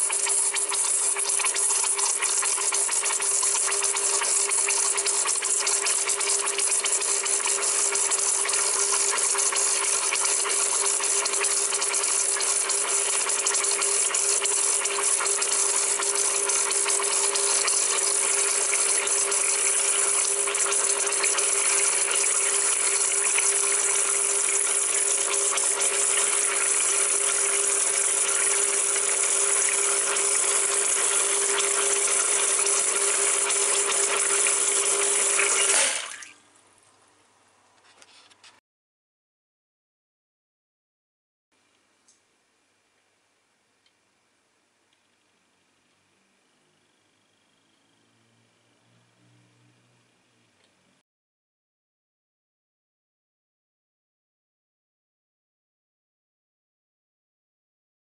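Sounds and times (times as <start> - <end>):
espresso machine pump buzzing: 0.0 - 36.4.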